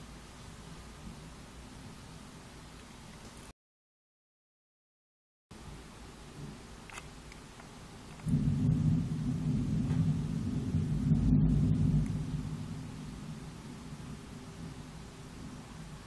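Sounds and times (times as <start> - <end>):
thunder rumbling: 8.2 - 16.0.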